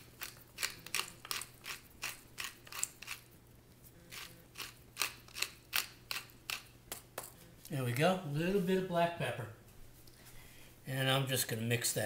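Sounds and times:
pepper mill grinding: 0:00.0 - 0:03.4, 0:04.0 - 0:07.4.

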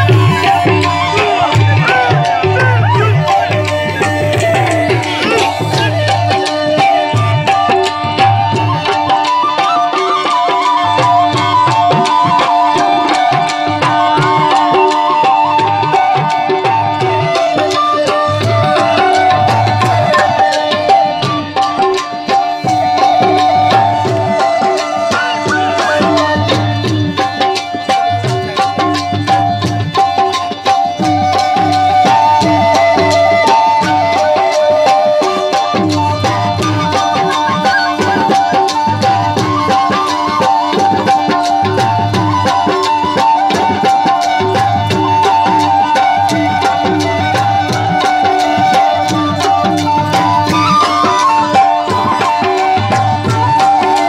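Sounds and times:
hand drum beat: 0:00.0 - 0:54.0
harmonium melody: 0:00.0 - 0:54.0
tabla playing fast rhythm: 0:00.0 - 0:54.0
wind instrument melody: 0:00.0 - 0:54.0.

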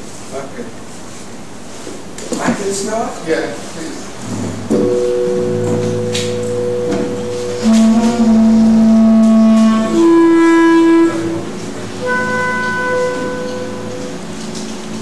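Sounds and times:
clarinet long-held notes: 0:04.8 - 0:15.0.

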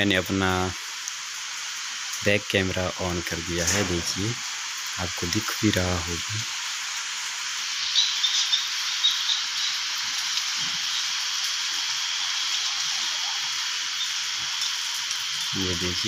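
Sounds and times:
rain drop ticks: 0:00.0 - 0:16.0
rain hissing: 0:00.0 - 0:16.0.

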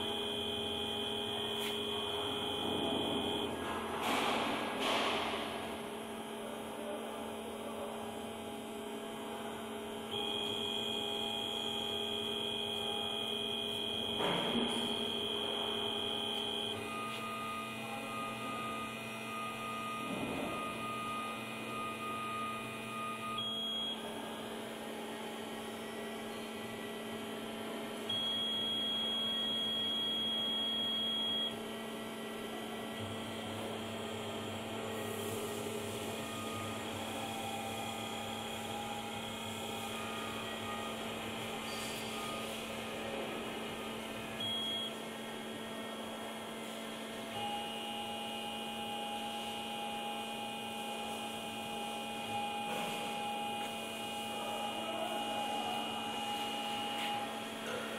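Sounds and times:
high-pitched motor whine: 0:00.0 - 0:03.6, 0:08.1 - 0:24.2, 0:25.8 - 0:46.4, 0:47.2 - 0:57.8
steady electrical hum: 0:00.0 - 0:57.9.

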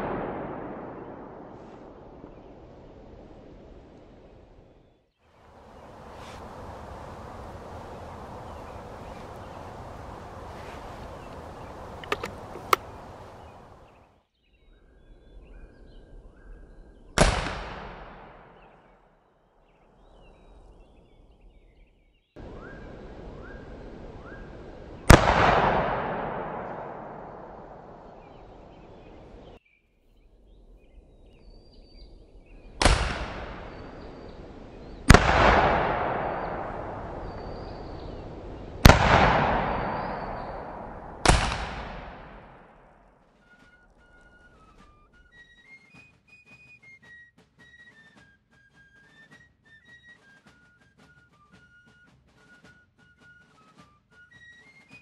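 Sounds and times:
rifle shots: 0:00.0 - 0:02.2, 0:07.8 - 0:13.8, 0:17.2 - 0:18.5, 0:25.1 - 0:28.7, 0:32.8 - 0:34.0, 0:35.1 - 0:42.9.

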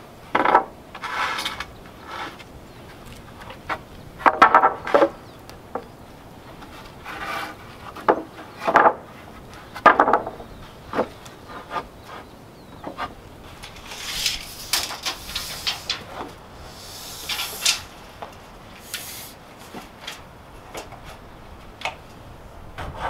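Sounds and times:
wooden planks knocking and scraping: 0:00.3 - 0:22.2
light scraping and ticking: 0:12.9 - 0:21.2.

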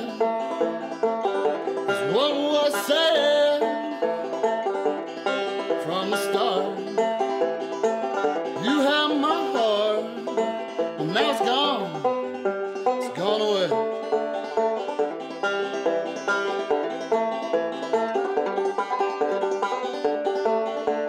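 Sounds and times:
man singing: 0:00.0 - 0:00.5, 0:01.9 - 0:04.2, 0:05.8 - 0:07.0, 0:08.6 - 0:12.0, 0:13.0 - 0:13.8
banjo playing: 0:00.0 - 0:21.0.

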